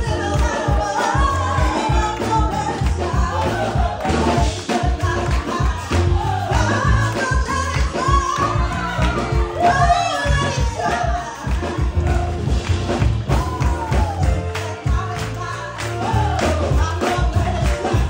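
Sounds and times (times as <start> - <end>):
woman singing lead: 0.0 - 12.6, 13.3 - 18.0
amplified accompaniment with heavy bass: 0.0 - 18.0
choir singing gospel: 0.0 - 18.0.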